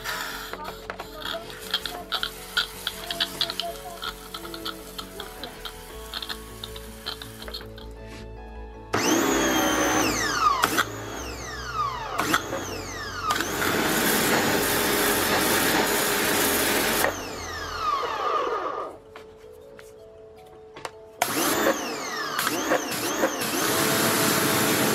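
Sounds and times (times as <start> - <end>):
water jet hissing: 0.0 - 8.0
pressure washer motor whine: 8.9 - 19.0, 21.2 - 24.9.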